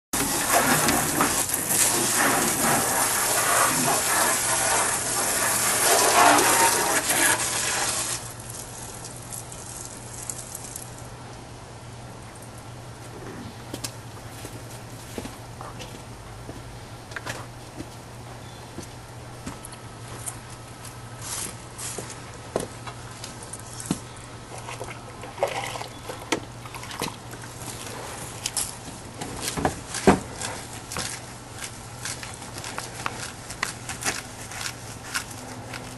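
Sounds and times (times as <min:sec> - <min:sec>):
garden hose spraying water: 0:00.2 - 0:11.1
footsteps on wet grass: 0:20.0 - 0:22.2, 0:27.5 - 0:35.9.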